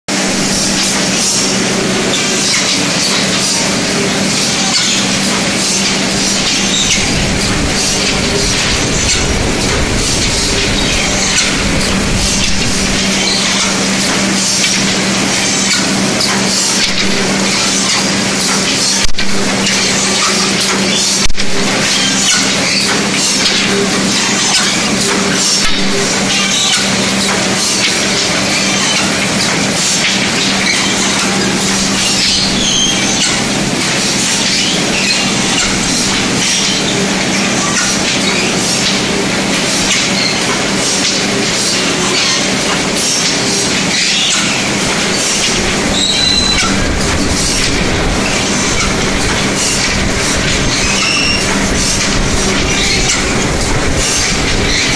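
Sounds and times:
machine running with low hum: 0.1 - 54.9
mechanical rattle: 0.1 - 54.9
high squeaks: 0.2 - 18.1, 19.7 - 54.9.

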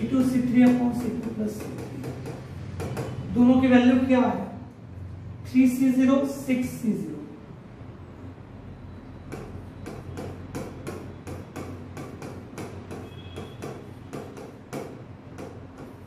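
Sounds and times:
pen tapping and clicking while writing: 0.0 - 3.2, 9.3 - 16.0.

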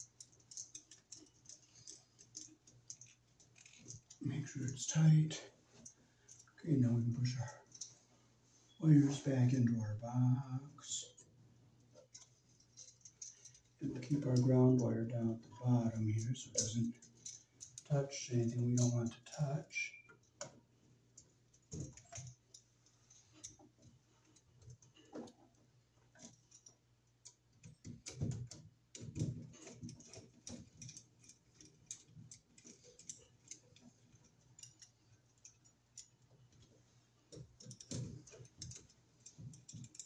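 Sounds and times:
screwdriver clicking and scraping metal: 0.0 - 4.2, 27.3 - 40.0.

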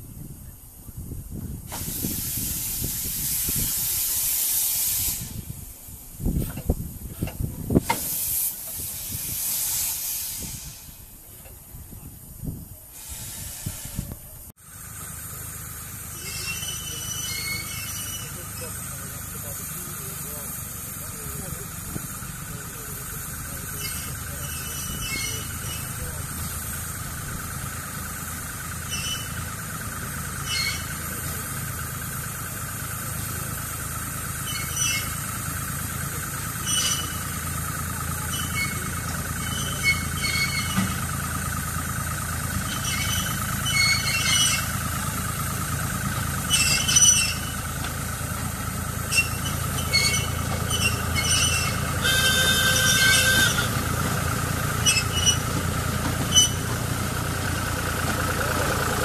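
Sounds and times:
diesel locomotive engine: 0.0 - 59.0
wheels squeaking on track: 12.9 - 59.0
wheel squeal: 16.0 - 59.0.

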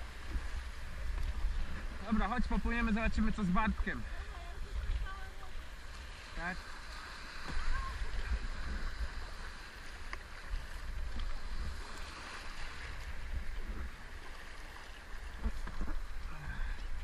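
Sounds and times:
breaking surf: 0.0 - 17.0
water rushing along canoe hull: 0.0 - 17.0.

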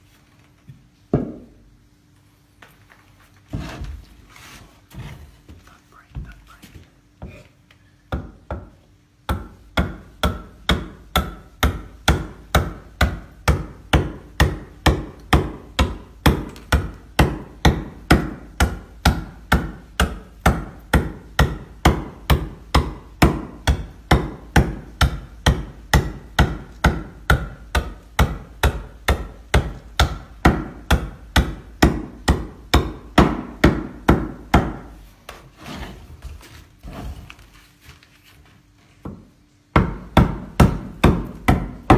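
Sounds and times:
hand adze chopping wood: 9.3 - 34.9, 39.8 - 41.9.

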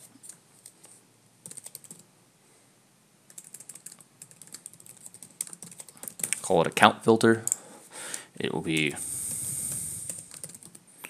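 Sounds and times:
typing on computer keyboard: 1.4 - 2.1, 3.3 - 6.4, 10.0 - 10.8.

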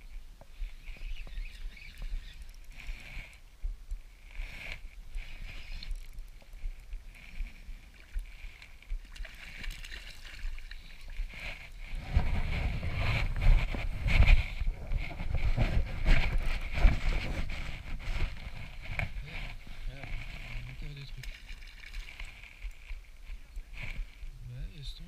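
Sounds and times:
fishing reel whirring: 0.7 - 3.4, 4.2 - 7.4
water lapping: 5.2 - 13.3, 17.6 - 23.2
wind buffeting microphone: 10.4 - 21.3.

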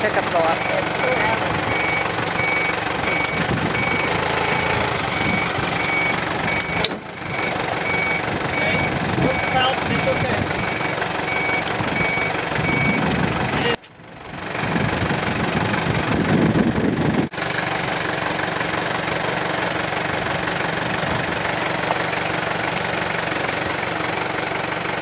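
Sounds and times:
warning alarm beeping: 0.0 - 13.0
forklift engine running: 0.0 - 25.0.

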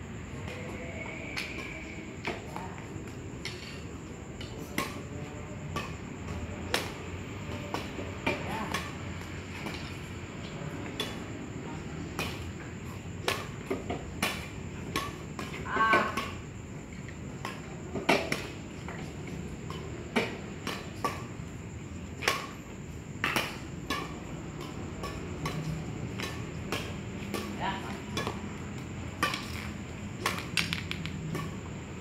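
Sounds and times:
racket smacking shuttlecock: 23.2 - 27.5, 29.1 - 31.6.

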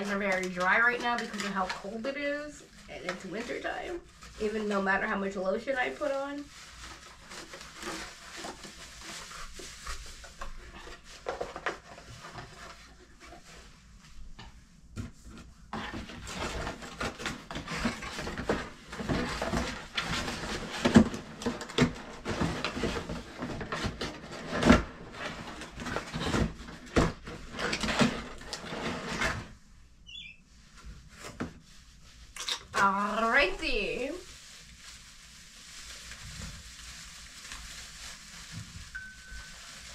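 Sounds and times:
plastic wrap crinkling: 0.0 - 14.3, 30.6 - 39.9.

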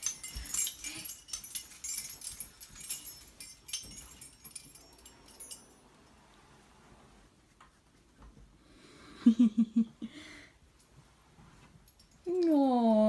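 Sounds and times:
small metal pieces jingling: 0.0 - 5.8.

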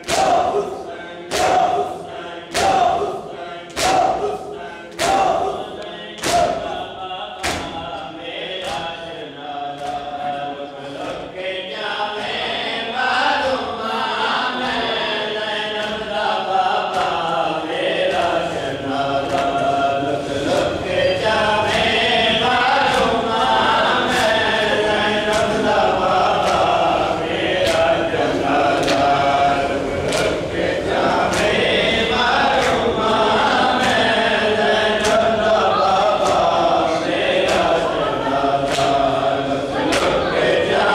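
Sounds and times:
hands slapping bare chests: 0.0 - 0.6, 2.5 - 3.1, 3.7 - 5.5, 27.6 - 27.9, 28.8 - 29.1, 30.1 - 30.4
men chanting in unison: 0.0 - 40.9.

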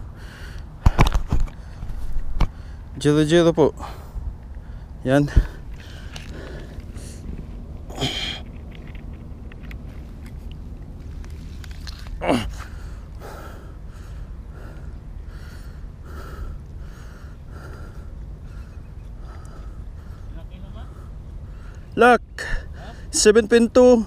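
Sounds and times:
man breathing hard: 0.0 - 3.0, 3.8 - 8.5, 12.2 - 23.2
steady low rumble: 0.0 - 24.0
man grunting: 12.2 - 12.6.

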